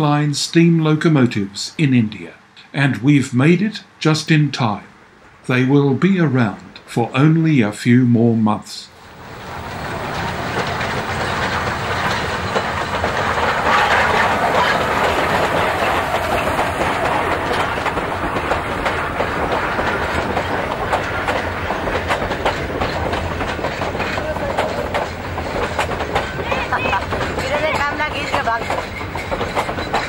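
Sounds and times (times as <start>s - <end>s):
train coaches rushing past: 8.9s - 30.0s
wheels clattering over rail joints: 9.0s - 30.0s.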